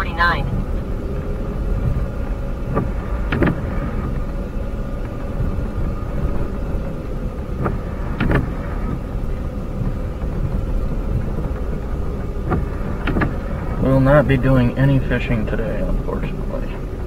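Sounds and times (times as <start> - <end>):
road and tyre rumble: 0.0 - 17.0
vehicle engine running: 0.0 - 17.0
windshield wipers thumping: 0.0 - 17.0.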